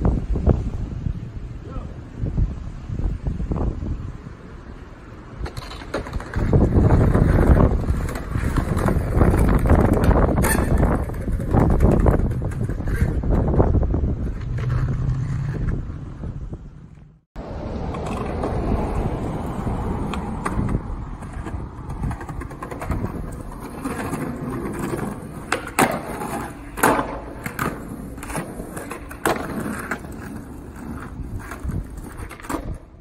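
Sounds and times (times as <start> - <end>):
skateboard wheels rolling on asphalt: 0.0 - 33.0
skateboard clacking on ground: 5.4 - 16.1, 17.8 - 33.0.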